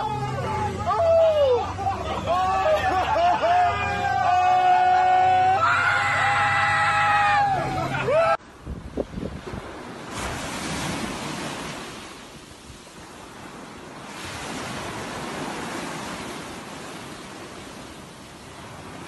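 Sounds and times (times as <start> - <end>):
surf washing on shore: 0.0 - 19.0
wind on microphone: 8.5 - 19.0.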